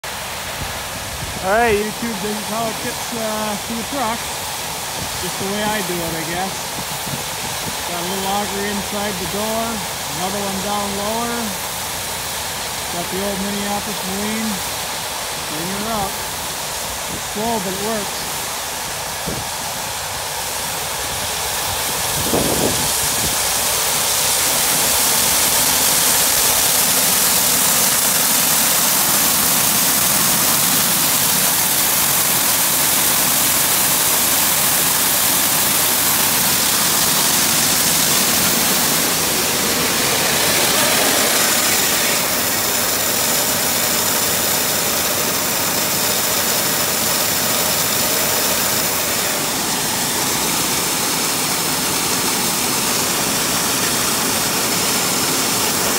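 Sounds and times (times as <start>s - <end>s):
tractor engine running: 0.0s - 55.9s
electric auger motor: 21.3s - 55.9s.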